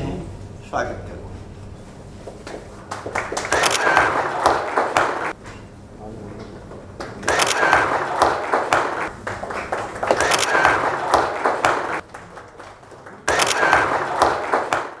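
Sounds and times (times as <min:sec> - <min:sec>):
audience applauding: 0:02.4 - 0:05.4, 0:06.4 - 0:15.0.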